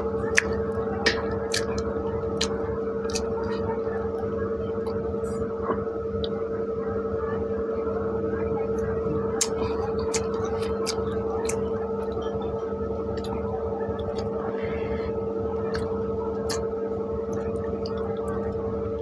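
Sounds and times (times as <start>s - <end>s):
chewing bread: 0.0s - 4.2s, 8.7s - 14.4s, 15.6s - 16.7s, 17.3s - 18.7s
steady hum: 0.0s - 19.0s.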